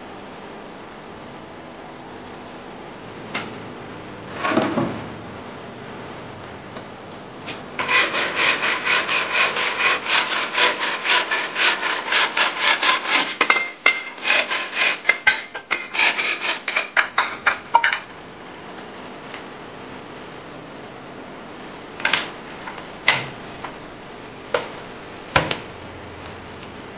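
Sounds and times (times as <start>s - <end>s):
hand saw cutting bamboo: 7.8s - 17.0s.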